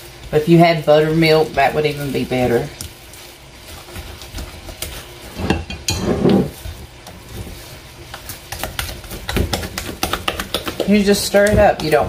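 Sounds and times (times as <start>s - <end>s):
spoon stirring thick batter: 0.0s - 12.0s.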